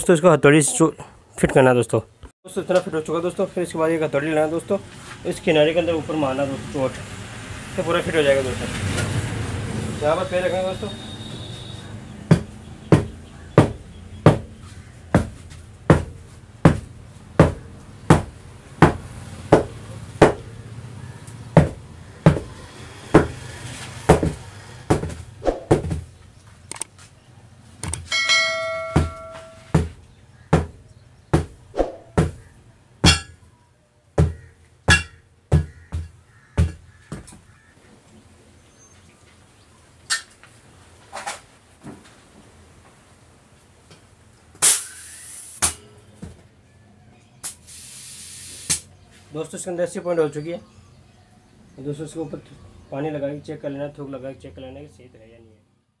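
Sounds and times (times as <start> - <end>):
hammer blows on tyre: 21.6 - 26.0
short ringing chime: 28.1 - 29.7.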